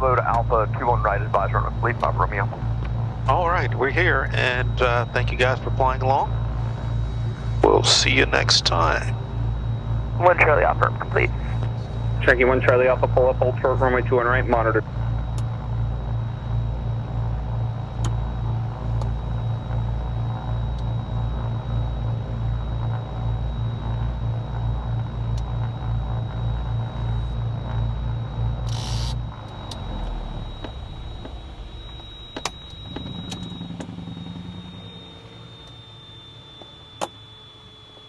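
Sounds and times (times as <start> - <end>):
aircraft engines idling: 0.0 - 38.0
steady high whine: 0.0 - 38.0
sharp clicks: 28.6 - 34.0.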